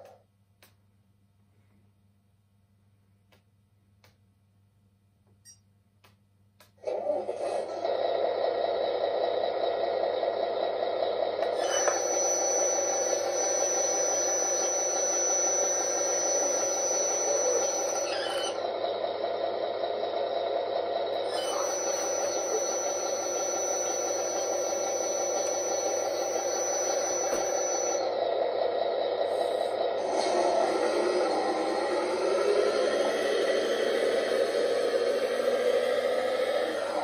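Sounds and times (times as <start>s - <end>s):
simulated diesel engine through speaker: 6.7s - 37.0s
hydraulic tipper whine: 6.8s - 37.0s.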